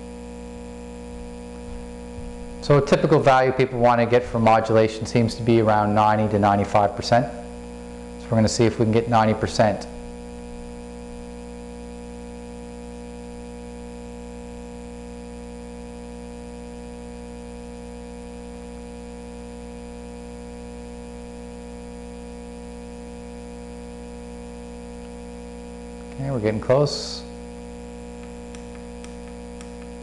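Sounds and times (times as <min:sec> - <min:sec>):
steady electrical hum: 0:00.0 - 0:30.0.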